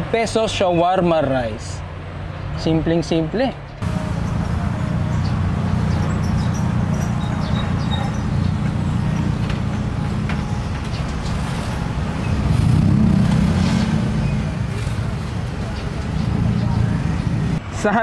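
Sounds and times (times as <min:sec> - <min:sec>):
low rumble of road traffic: 0:00.0 - 0:18.0.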